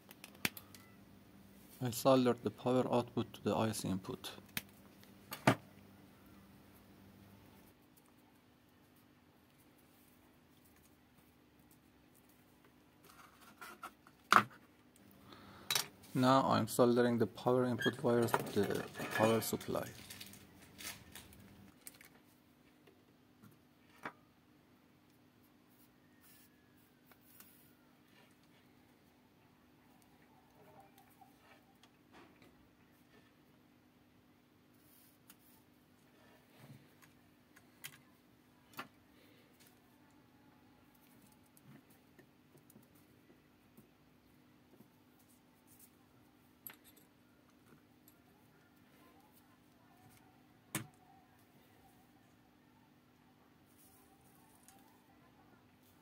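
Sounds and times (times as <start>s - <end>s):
faint steady hum: 0.0s - 13.4s, 14.6s - 56.0s
soft clicks of wires handled: 36.6s - 38.1s.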